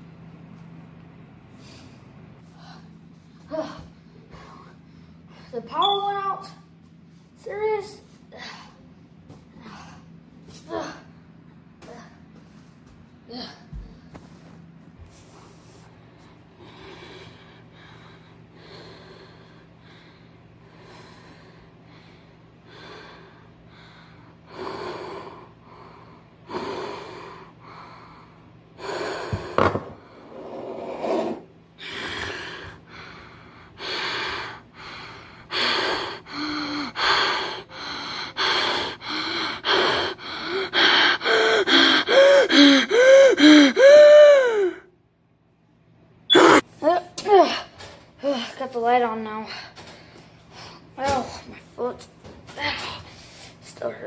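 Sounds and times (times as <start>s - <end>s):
person breathing heavily: 1.5s - 5.6s, 16.5s - 30.3s, 31.8s - 44.8s.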